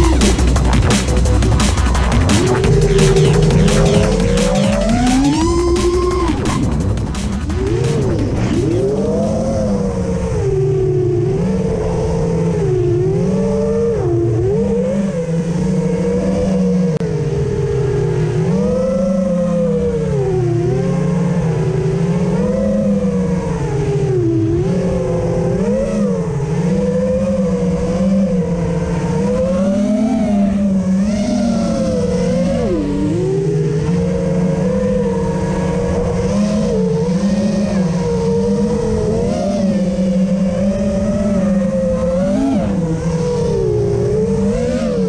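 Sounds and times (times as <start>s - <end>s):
electronic music with a beat: 0.0s - 9.6s
quadcopter motors whining: 0.0s - 45.0s.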